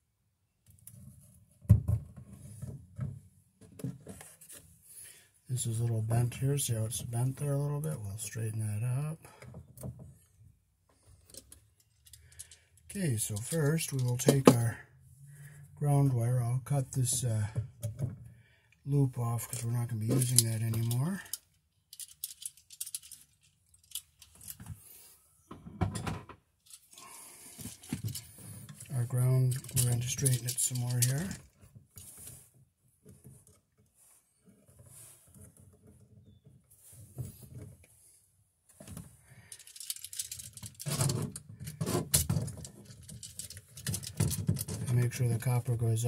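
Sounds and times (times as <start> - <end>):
tools and wire clicking: 19.5 - 24.6, 39.5 - 44.8.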